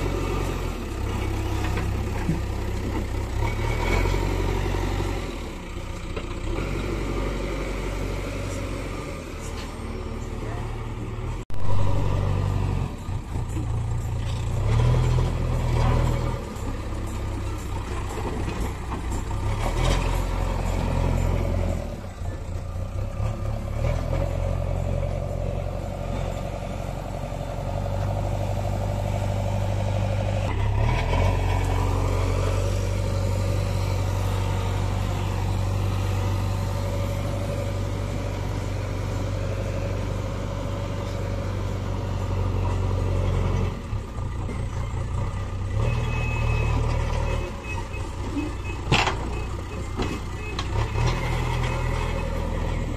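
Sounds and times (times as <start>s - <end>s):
diesel engine under load: 0.0s - 52.9s
reversing alarm beeps: 45.8s - 52.4s.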